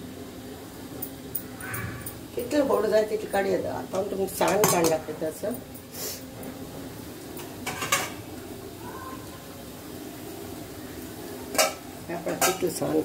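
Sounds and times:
low background noise: 0:00.0 - 0:13.0
steel utensils clinking: 0:01.0 - 0:05.9, 0:07.4 - 0:08.2, 0:11.5 - 0:13.0.

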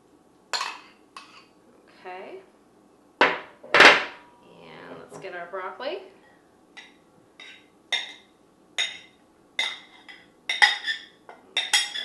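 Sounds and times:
metal spoon clinking on dish: 0:06.8 - 0:12.0.

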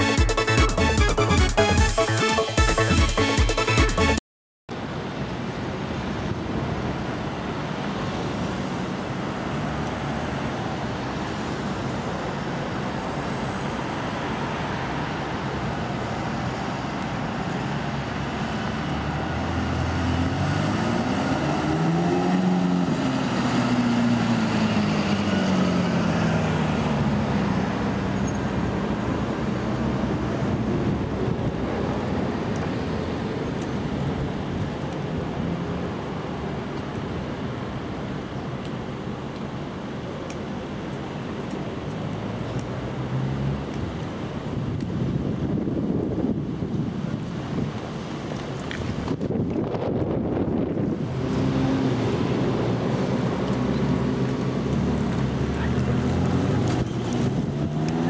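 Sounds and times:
traffic noise: 0:00.0 - 0:58.0
sports car engine accelerating: 0:18.4 - 0:27.4, 0:50.7 - 0:58.0.

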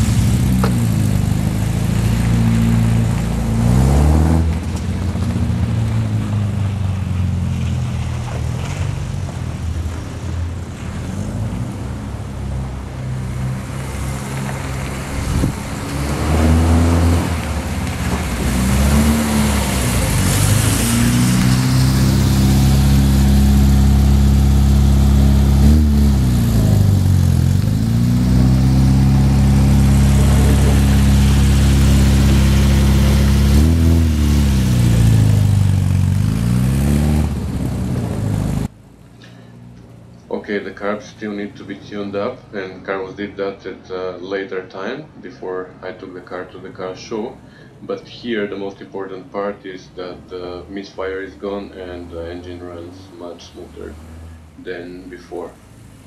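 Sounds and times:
car engine accelerating through gears: 0:00.0 - 0:39.5.

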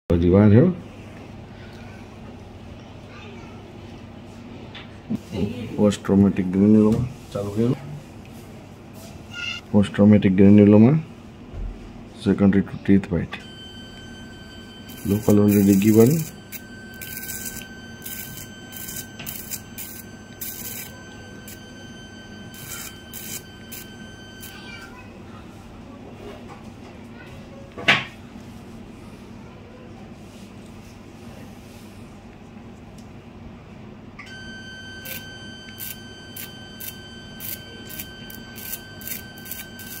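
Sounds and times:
steady cautery beep: 0:13.4 - 0:25.0, 0:34.3 - 0:40.0
electrocautery activation tone: 0:13.4 - 0:25.2, 0:34.2 - 0:40.0.

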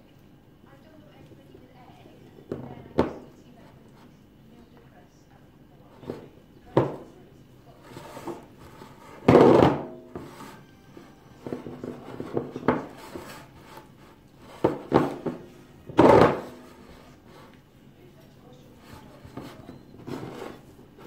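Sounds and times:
spatula scraping a bowl: 0:07.7 - 0:10.7, 0:11.4 - 0:15.4, 0:16.1 - 0:17.6, 0:18.8 - 0:20.7.

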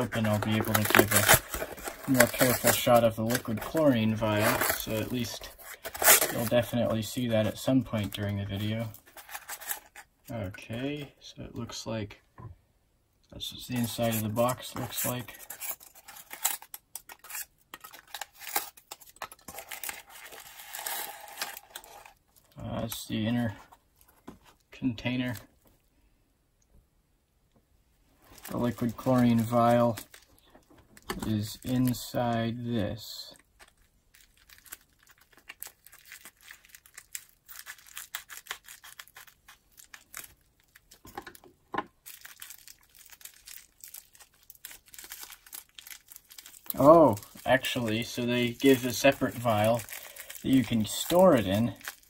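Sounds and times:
cardboard tearing: 0:00.0 - 0:06.7, 0:09.0 - 0:10.0, 0:13.8 - 0:22.2
plastic packaging crinkling: 0:00.0 - 0:10.1, 0:13.6 - 0:23.0, 0:28.2 - 0:32.4, 0:33.4 - 0:41.4, 0:42.0 - 0:52.0.

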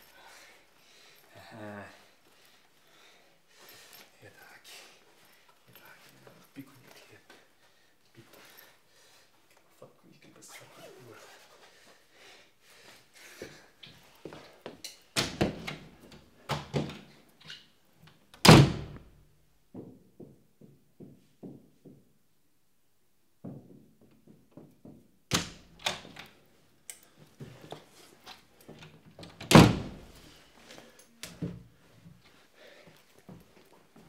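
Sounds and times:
heavy door thunks: 0:18.4 - 0:19.1, 0:29.4 - 0:30.1.

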